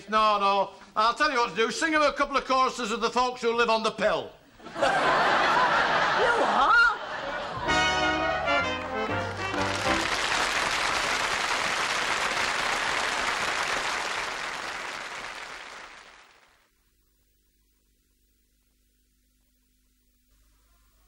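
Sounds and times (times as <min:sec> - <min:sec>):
audience applause: 0:06.2 - 0:16.7
faint hum: 0:10.1 - 0:21.0.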